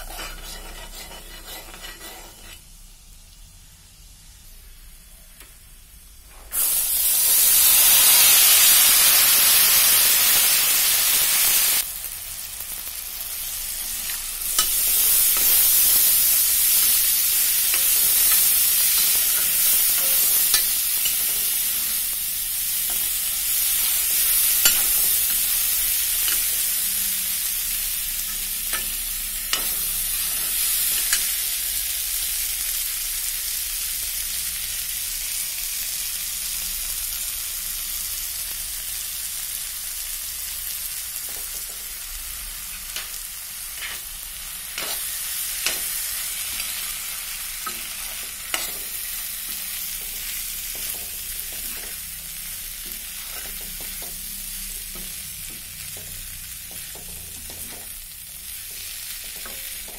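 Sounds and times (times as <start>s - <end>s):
spatula scraping a metal pan: 0.0s - 2.7s, 14.0s - 27.2s, 44.7s - 56.1s
food sizzling in oil: 0.0s - 59.9s.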